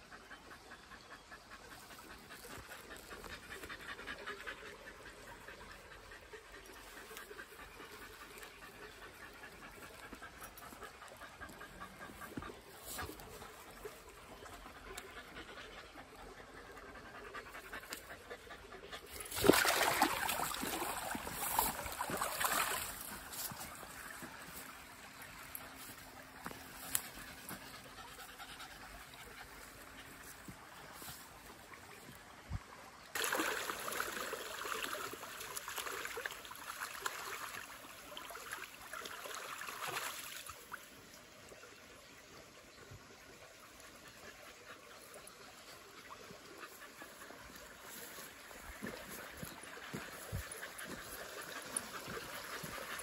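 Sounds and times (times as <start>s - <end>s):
dog panting: 0.0s - 19.4s, 25.6s - 31.2s, 43.8s - 53.0s.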